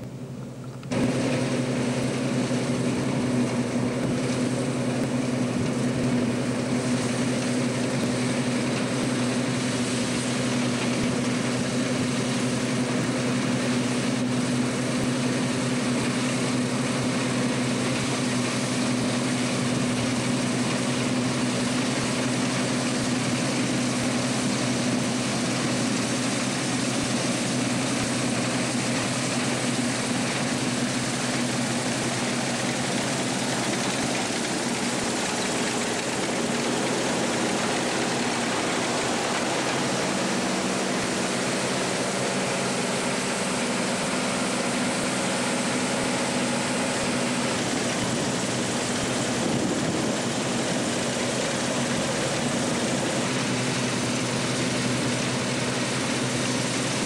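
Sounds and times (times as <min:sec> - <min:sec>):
combine engine humming: 0:00.0 - 0:57.0
threshing machinery noise: 0:00.0 - 0:57.0.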